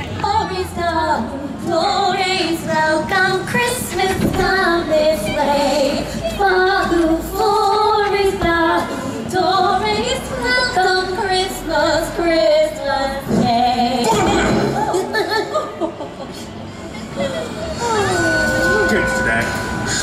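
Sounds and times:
women singing: 0.0s - 16.4s
backing music: 17.5s - 20.0s.

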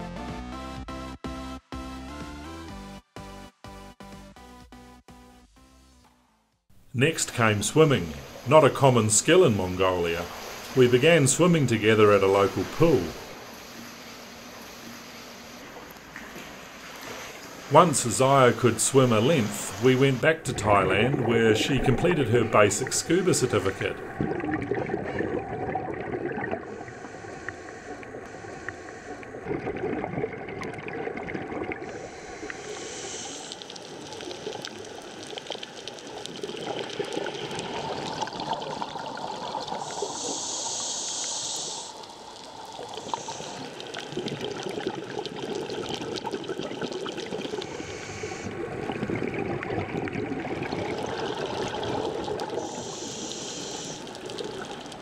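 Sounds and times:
regulator exhaust bubbles gurgling: 17.7s - 40.5s, 41.9s - 55.0s
hissing regulator inhalation: 26.6s - 29.5s, 31.8s - 35.6s, 39.2s - 45.8s, 47.2s - 48.7s, 50.9s - 55.0s.

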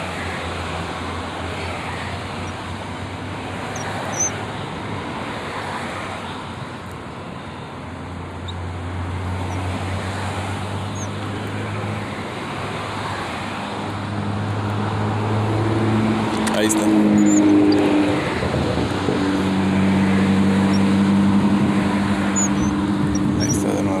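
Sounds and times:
distant motor traffic: 0.0s - 24.0s
faint high chirps: 22.4s - 23.6s.

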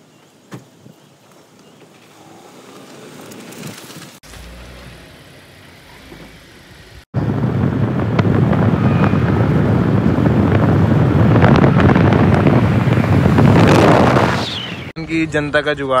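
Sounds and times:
road noise: 0.0s - 16.0s
low rumble: 6.9s - 15.6s
wind rushing over microphone: 7.1s - 15.6s.

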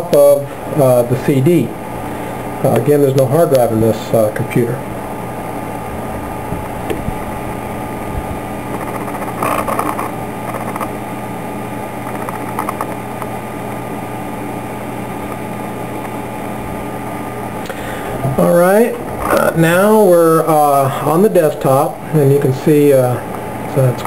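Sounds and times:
optical drive whirring: 3.6s - 20.8s
drive clicks and rattles: 12.0s - 13.8s.

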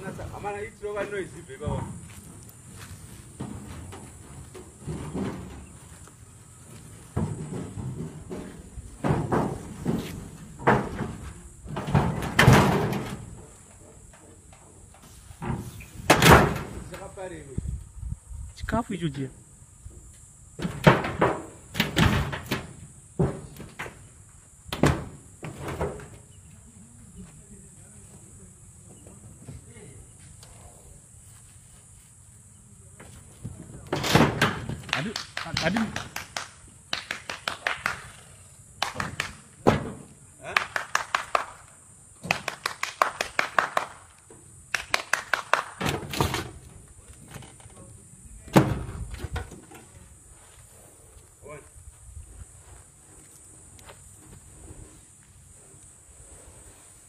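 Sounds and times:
metal car body banging: 7.1s - 13.4s.

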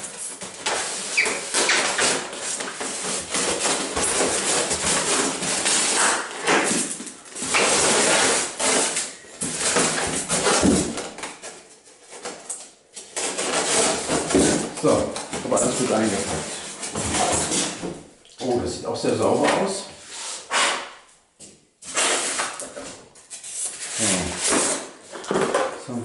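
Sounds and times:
foam blocks scraping together: 0.1s - 11.0s, 21.9s - 25.2s.

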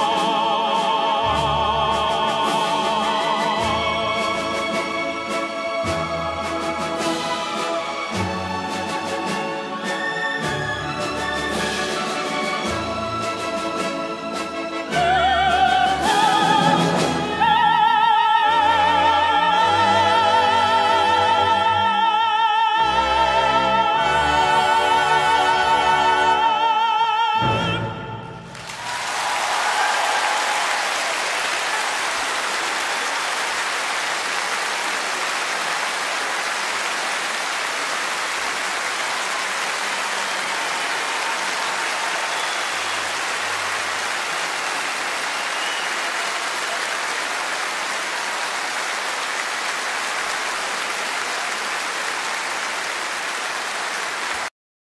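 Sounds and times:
audience applauding: 28.5s - 54.5s.

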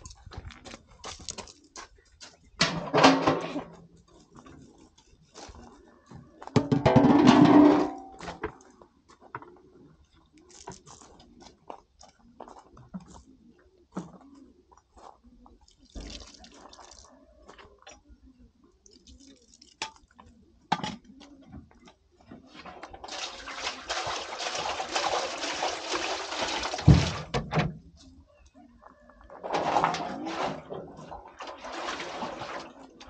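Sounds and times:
water pouring: 15.7s - 17.1s, 22.6s - 27.4s, 29.3s - 33.0s.

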